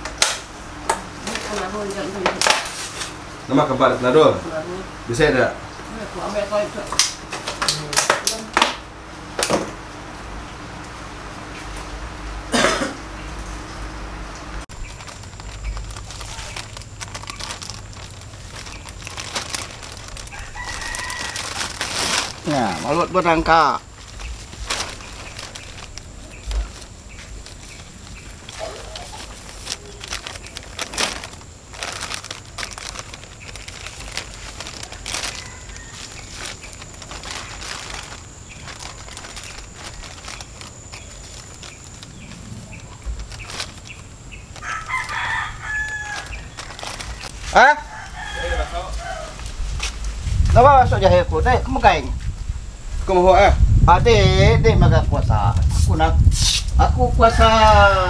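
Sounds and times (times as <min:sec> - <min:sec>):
low steady hum: 0:00.0 - 0:48.2
plastic bag crinkling: 0:14.7 - 0:50.6.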